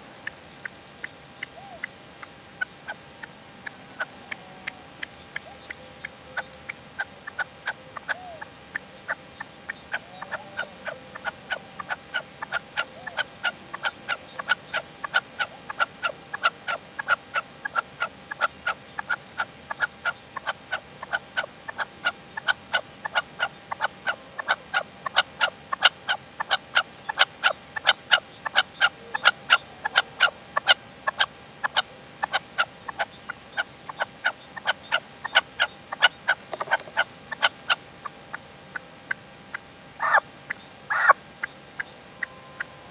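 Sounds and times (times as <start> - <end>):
partridge calling harsh notes: 40.9 - 41.2.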